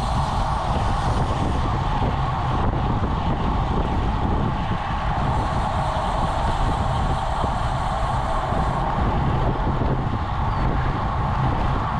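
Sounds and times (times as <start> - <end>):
wind buffeting microphone: 0.0 - 11.9
tyres hissing on asphalt: 5.1 - 9.2.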